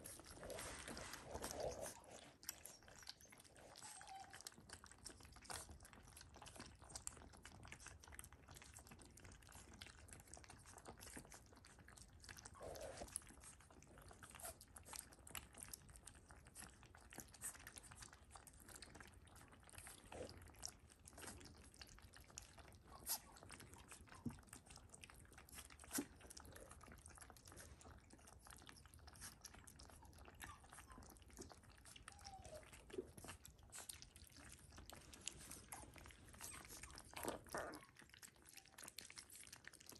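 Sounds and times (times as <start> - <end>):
puppies lapping and chewing: 0.0 - 39.9.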